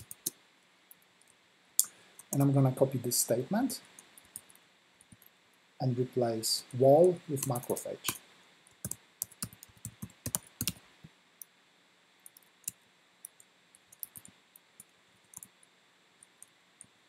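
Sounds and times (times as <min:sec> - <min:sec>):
typing on keyboard: 0:00.0 - 0:00.4, 0:07.4 - 0:08.2, 0:08.8 - 0:10.8, 0:13.3 - 0:15.5.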